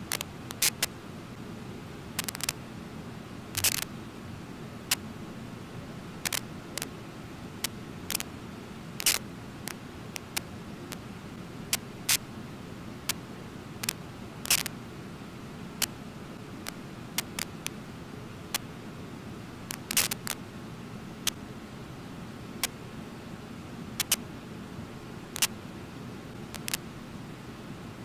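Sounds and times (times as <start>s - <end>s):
sharp clicks and crackles: 0.0s - 0.9s, 2.2s - 2.6s, 3.6s - 3.9s, 6.2s - 6.9s, 7.6s - 8.3s, 9.0s - 11.0s, 13.8s - 14.7s, 16.7s - 17.8s, 19.7s - 20.4s, 24.0s - 24.2s, 26.6s - 26.8s.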